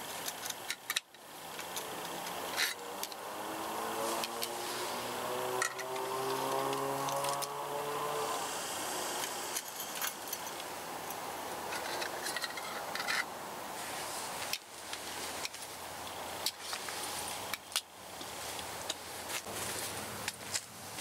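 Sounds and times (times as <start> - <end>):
steady hiss: 0.0 - 21.0
metallic clicks and clinks: 9.2 - 13.3.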